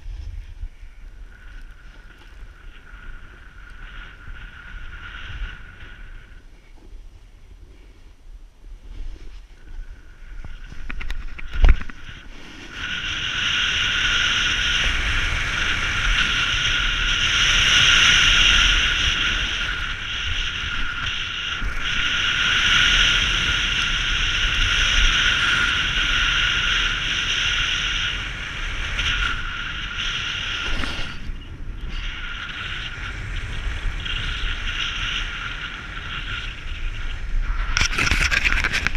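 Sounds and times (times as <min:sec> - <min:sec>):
wind on microphone: 0:00.0 - 0:38.9
snowboard hissing over snow: 0:08.8 - 0:38.9
ski edges chattering on hard snow: 0:28.8 - 0:38.9.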